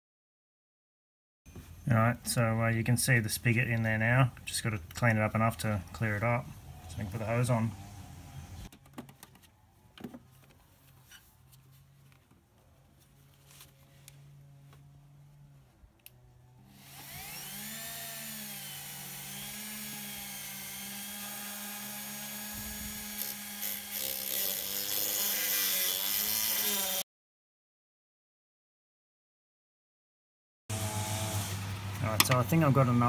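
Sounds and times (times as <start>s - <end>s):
rotary tool grinding: 16.7s - 27.0s.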